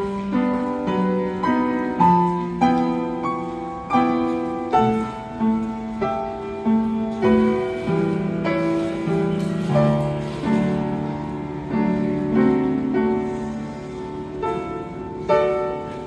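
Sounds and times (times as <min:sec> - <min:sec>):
upright piano playing: 0:00.0 - 0:16.0.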